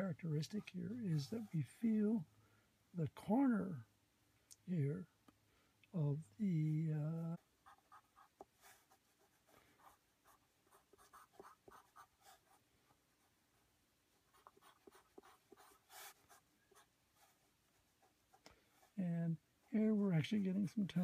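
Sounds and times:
pencil scratching on paper: 0:07.6 - 0:12.6, 0:14.3 - 0:19.0.

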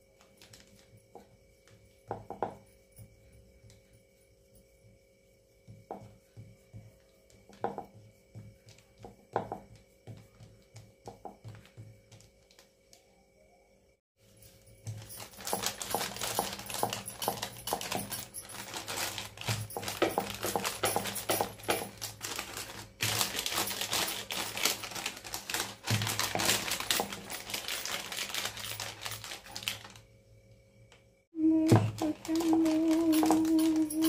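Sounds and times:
plastic sheet crinkling: 0:14.9 - 0:30.1, 0:31.7 - 0:34.0.

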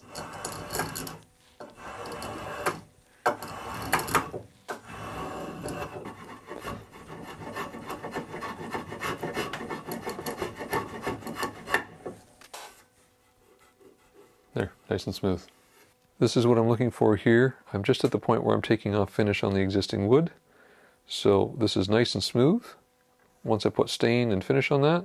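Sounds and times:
spokeshave scraping wood: 0:00.0 - 0:14.4.

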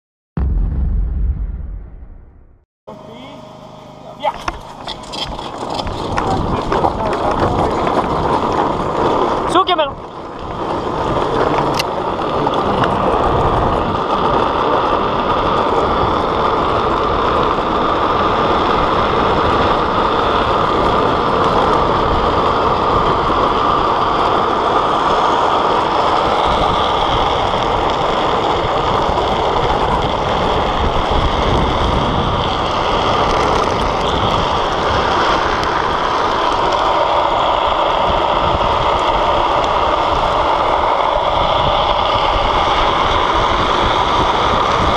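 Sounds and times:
wheels rumbling on asphalt: 0:02.9 - 0:44.9
wind rushing on microphone: 0:04.9 - 0:44.9.

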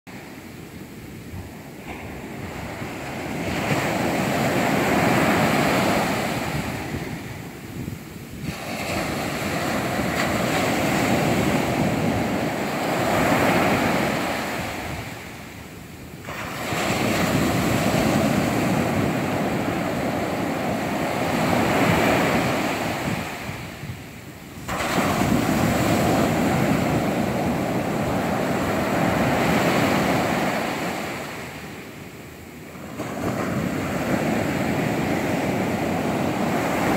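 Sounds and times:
waves breaking on sand: 0:00.1 - 0:36.9.

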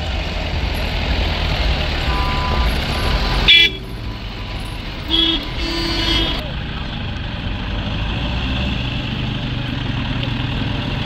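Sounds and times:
low rumble of road traffic: 0:00.0 - 0:11.0
vehicle horns tooting: 0:02.0 - 0:06.5.

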